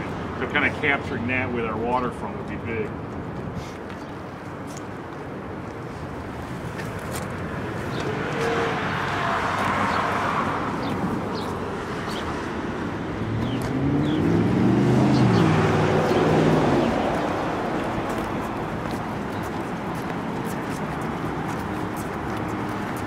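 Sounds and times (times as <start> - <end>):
passing car tyre noise: 3.5 - 23.0
heavy vehicle engine hum: 5.3 - 23.0.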